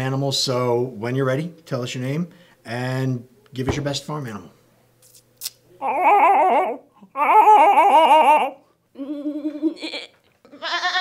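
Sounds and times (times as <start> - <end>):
person imitating farm animal: 5.8 - 11.0.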